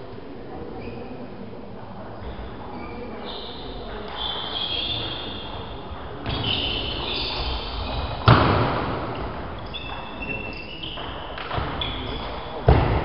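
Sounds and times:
shoe squeaks: 0:00.7 - 0:01.4, 0:02.2 - 0:12.7
loud thud: 0:08.2 - 0:09.5, 0:12.6 - 0:13.0.

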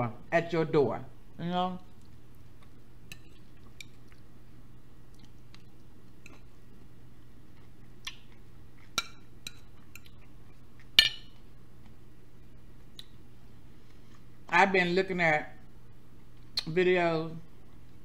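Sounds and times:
fork clinking on a plate: 0:11.0 - 0:11.4.

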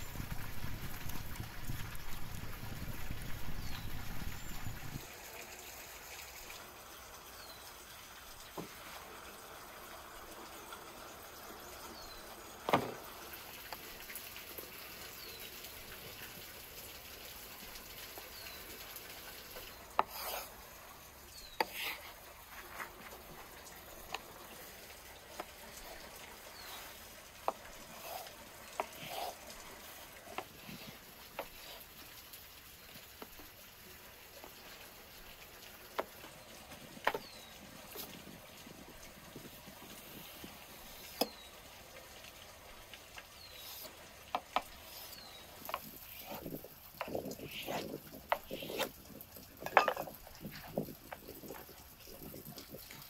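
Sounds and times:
running water trickle: 0:00.0 - 0:53.0
knife cutting on wooden board: 0:20.0 - 0:20.5, 0:21.6 - 0:22.1, 0:27.9 - 0:29.4, 0:43.6 - 0:48.9.

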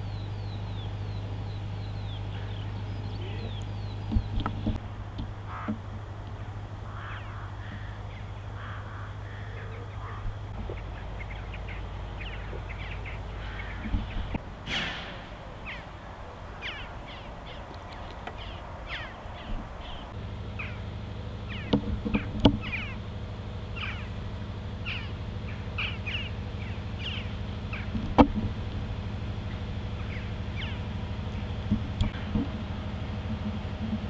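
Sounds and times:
birds calling: 0:00.0 - 0:34.0
steady low hum: 0:00.0 - 0:34.0
sharp knocks: 0:13.8 - 0:16.0.

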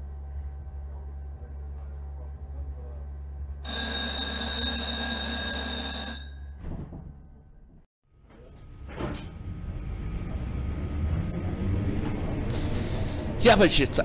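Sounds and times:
electric bell ringing: 0:03.6 - 0:06.6
tram rumbling by: 0:08.7 - 0:14.0.

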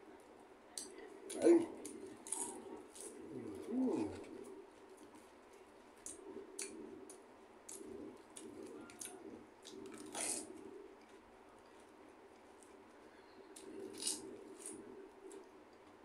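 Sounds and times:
person chewing: 0:01.3 - 0:05.2, 0:06.0 - 0:11.8
cabbage leaf tearing: 0:02.2 - 0:04.2, 0:13.8 - 0:14.8.

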